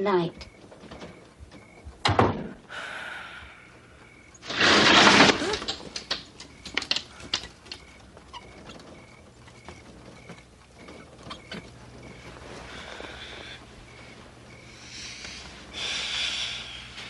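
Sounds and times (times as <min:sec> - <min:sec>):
door thudding shut: 0:02.0 - 0:02.6
small clicks: 0:05.5 - 0:07.9.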